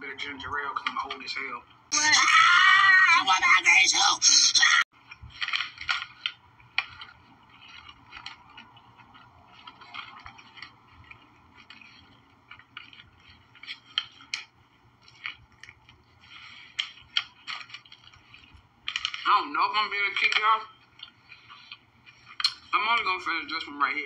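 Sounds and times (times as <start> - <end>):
chewing sandwich: 4.9 - 19.3, 20.6 - 22.8
paper wrapper crackling: 5.0 - 24.0.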